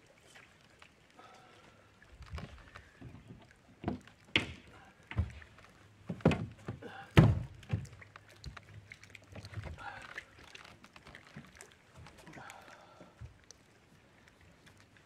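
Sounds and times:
thumps on boat deck: 0:06.1 - 0:07.9.

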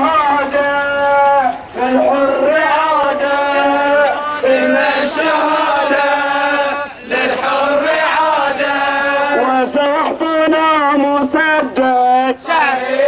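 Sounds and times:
man chanting: 0:00.0 - 0:04.9, 0:09.2 - 0:12.4.

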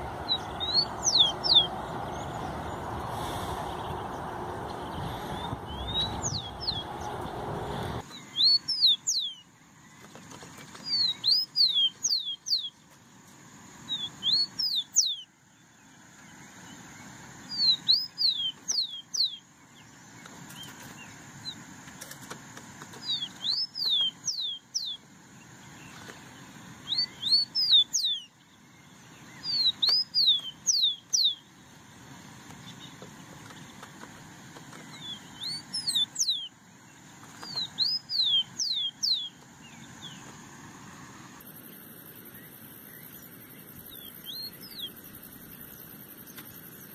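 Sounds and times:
steady rushing noise: 0:00.0 - 0:08.1
sparrow whistling song: 0:00.0 - 0:09.5, 0:10.8 - 0:12.8, 0:13.9 - 0:15.3, 0:16.6 - 0:21.6, 0:23.0 - 0:25.0, 0:26.8 - 0:31.5, 0:34.9 - 0:36.6, 0:37.4 - 0:40.2, 0:42.3 - 0:45.8
faint chirps: 0:00.0 - 0:10.1, 0:22.9 - 0:31.8, 0:34.8 - 0:46.9.

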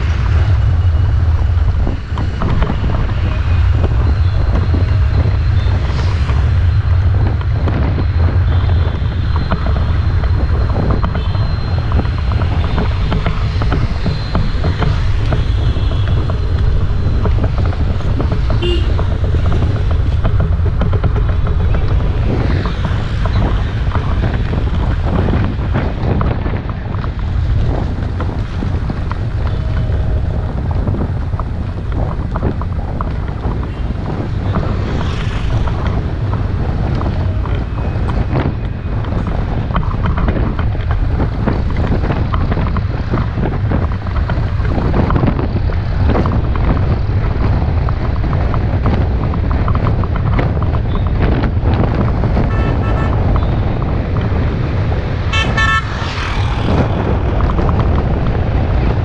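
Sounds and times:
wind noise on microphone: 0:00.0 - 0:59.0
vehicle horn beeping: 0:18.6 - 0:19.0, 0:52.5 - 0:53.6, 0:55.3 - 0:56.0.

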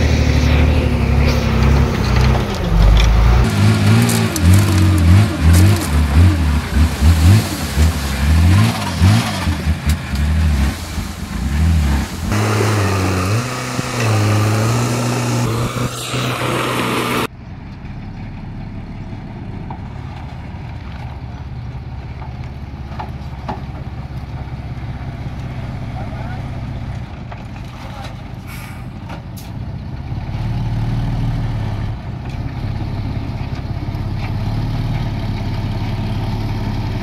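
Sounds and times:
diesel engine revving: 0:00.0 - 0:21.8, 0:28.5 - 0:37.0
low diesel engine hum: 0:00.0 - 0:37.0.

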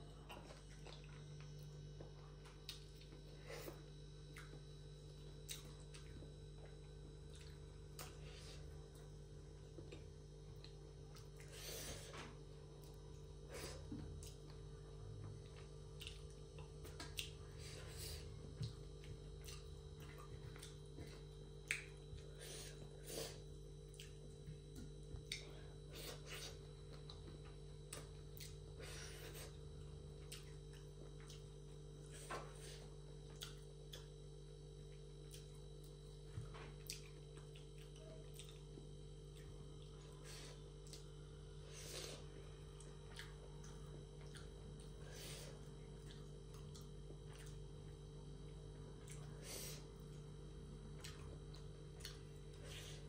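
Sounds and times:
low electrical hum: 0:00.0 - 0:53.0
chewing and lip smacks: 0:00.3 - 0:03.2, 0:05.2 - 0:08.2, 0:15.4 - 0:22.3, 0:23.9 - 0:25.5, 0:29.3 - 0:32.2, 0:33.2 - 0:34.2, 0:34.9 - 0:41.1, 0:42.7 - 0:53.0.

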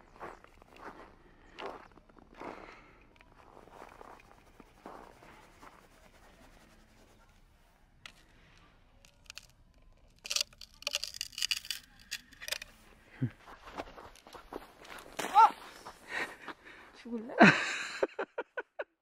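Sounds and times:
snow crunching and scraping: 0:12.8 - 0:17.2.

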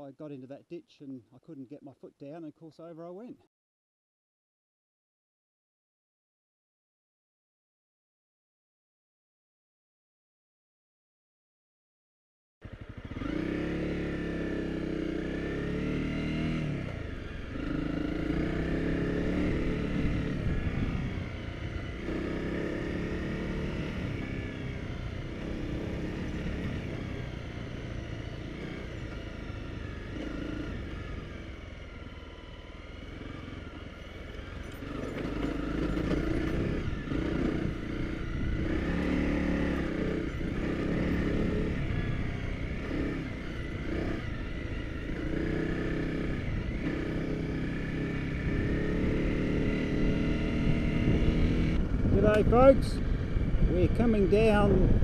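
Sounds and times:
motorcycle engine revving: 0:12.6 - 0:55.0.

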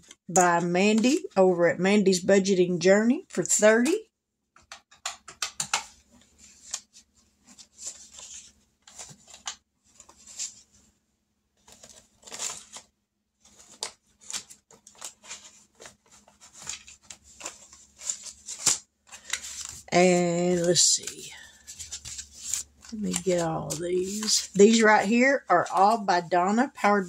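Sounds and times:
paper rustling and crinkling: 0:05.6 - 0:10.9, 0:11.6 - 0:27.0.

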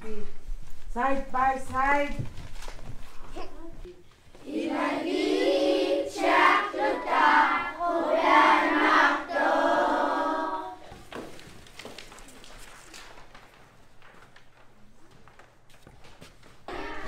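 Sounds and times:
children singing together: 0:04.4 - 0:10.9, 0:16.7 - 0:17.0.

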